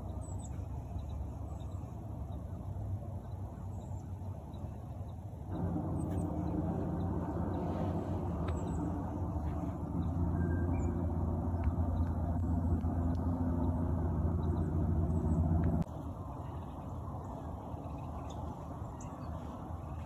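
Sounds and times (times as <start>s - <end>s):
vehicle engine running: 5.5s - 20.0s.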